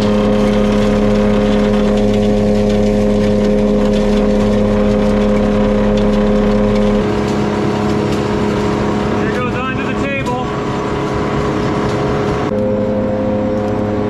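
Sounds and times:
ore pouring into chute: 0:00.0 - 0:11.7
machine motors humming: 0:00.0 - 0:14.0.

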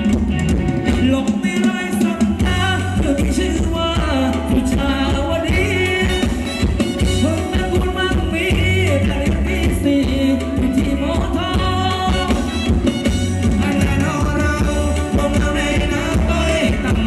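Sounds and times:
live band playing dance music: 0:00.0 - 0:17.0
person singing: 0:00.8 - 0:17.0.

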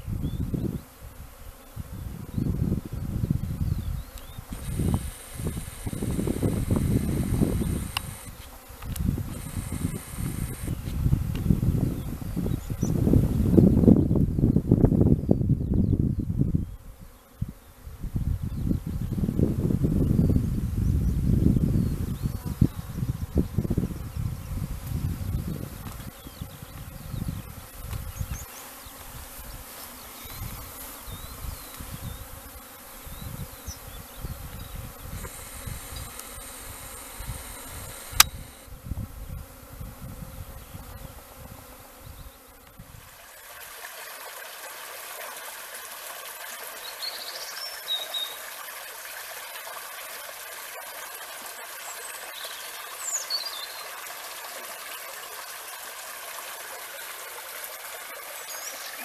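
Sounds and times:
bees buzzing: 0:00.0 - 0:15.2, 0:16.8 - 0:59.0
wind on microphone: 0:00.0 - 0:43.1
sharp click: 0:07.9 - 0:08.1, 0:38.0 - 0:38.5
stream trickling over stones: 0:43.0 - 0:59.0.

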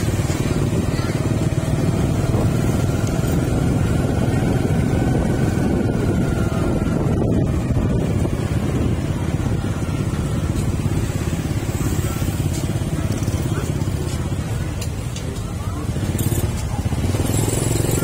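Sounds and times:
vehicle road and engine rumble: 0:00.0 - 0:18.0.

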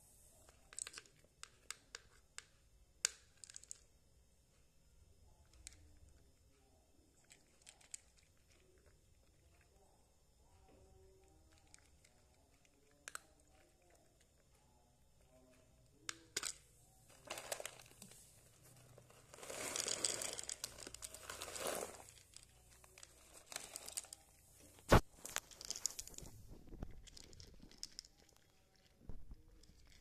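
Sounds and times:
cat crunching dry kibble: 0:07.2 - 0:09.4, 0:17.2 - 0:30.0.

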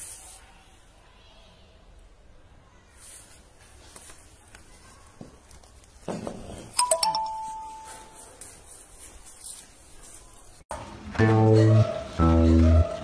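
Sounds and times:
two-note ding-dong chime: 0:06.8 - 0:08.2.

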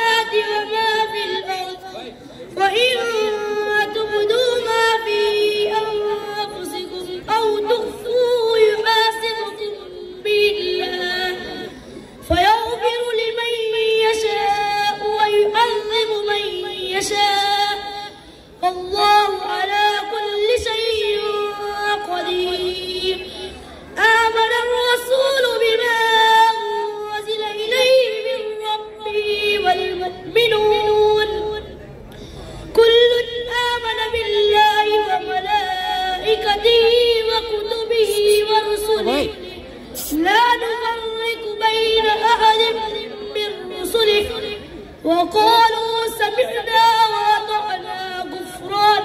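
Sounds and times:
child chanting over microphone: 0:00.0 - 0:31.6, 0:32.7 - 0:49.0.

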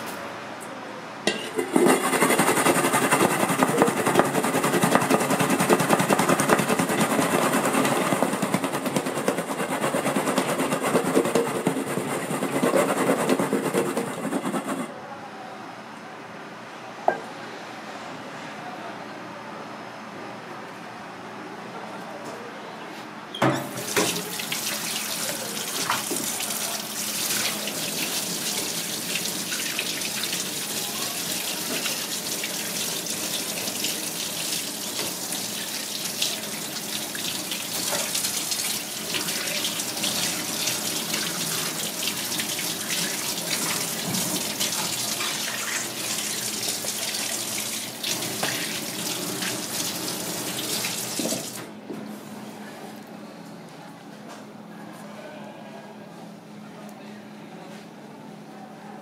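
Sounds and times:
tap water running into sink: 0:23.5 - 0:51.7.

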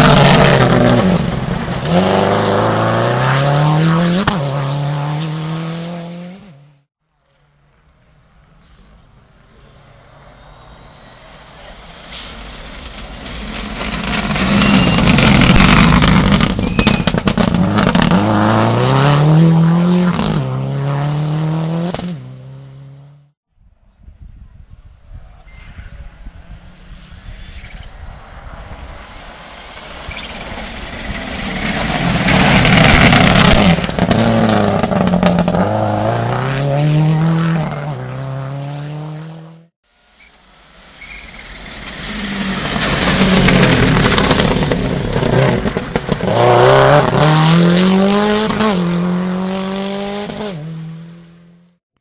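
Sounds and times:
rally car engine at full throttle: 0:00.0 - 0:06.8, 0:12.6 - 0:23.1, 0:29.8 - 0:39.7, 0:40.7 - 0:51.6
tyre noise rushing: 0:11.7 - 0:20.9, 0:28.4 - 0:39.1, 0:41.0 - 0:50.5.

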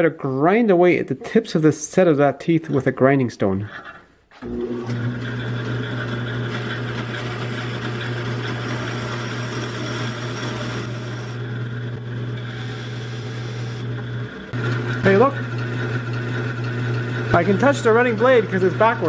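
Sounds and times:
bandsaw motor hum: 0:04.4 - 0:19.0
grinding stone rasping on blade: 0:05.2 - 0:19.0.

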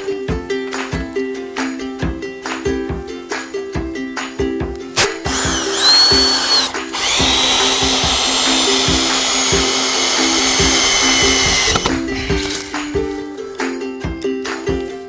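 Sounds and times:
ukulele music: 0:00.0 - 0:15.0
cordless drill into wood: 0:05.0 - 0:12.5.

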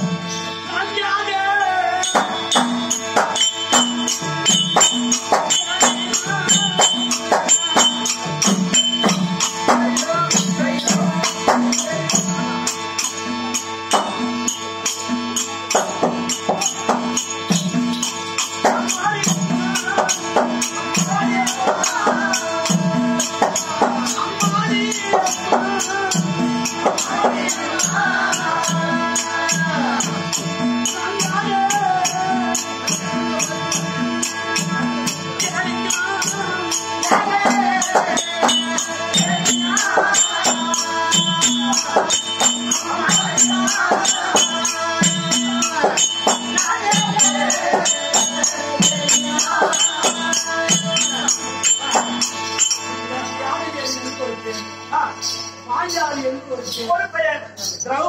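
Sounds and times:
harmonium drone: 0:00.0 - 0:58.0
hand cymbals jingling: 0:01.6 - 0:58.0
drum beating: 0:02.0 - 0:12.6
person singing: 0:18.6 - 0:52.5.

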